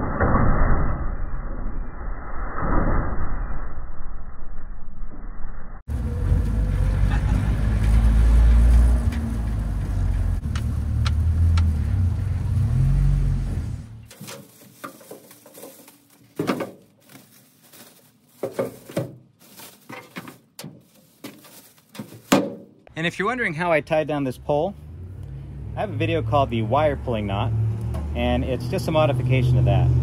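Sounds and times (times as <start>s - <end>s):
pickup truck rumble: 5.9s - 14.2s
plastic bags rustling: 14.0s - 22.8s
knocks from truck bed: 22.3s - 22.7s.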